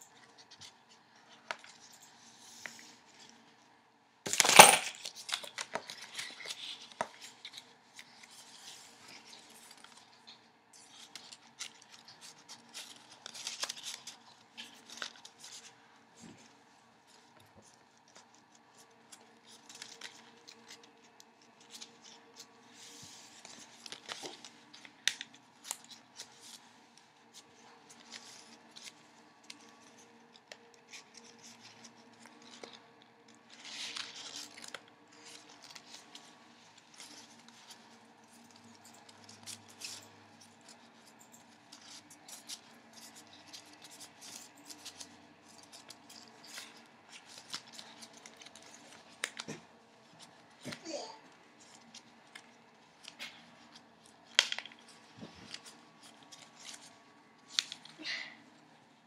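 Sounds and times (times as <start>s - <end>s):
paper rustling and crinkling: 0.1s - 59.0s
light paper clicks: 17.1s - 50.8s.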